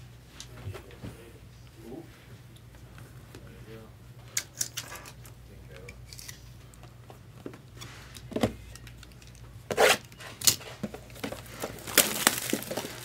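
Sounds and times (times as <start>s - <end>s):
card packs rustling and tapping: 10.3s - 13.0s.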